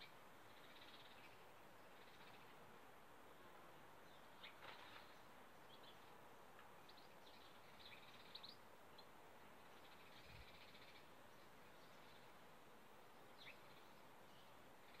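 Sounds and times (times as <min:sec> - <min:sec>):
steady outdoor hiss: 0:00.0 - 0:15.0
birds chirping: 0:03.4 - 0:15.0.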